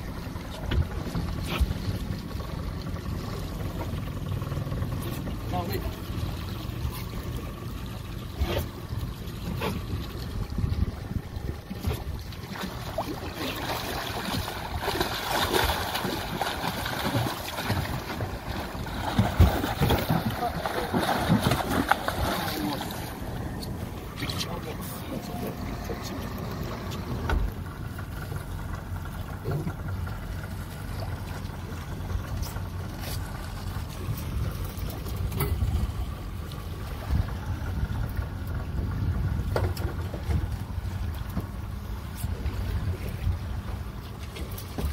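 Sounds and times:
boat engine rumbling: 0.0 - 44.9
water splashing against a hull: 0.0 - 44.9
wind buffeting the microphone: 9.8 - 12.4, 37.0 - 41.6.

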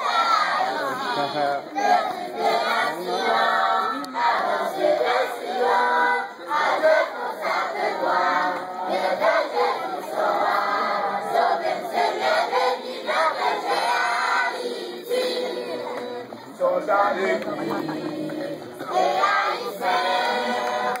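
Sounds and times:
children singing in unison: 0.0 - 21.0.

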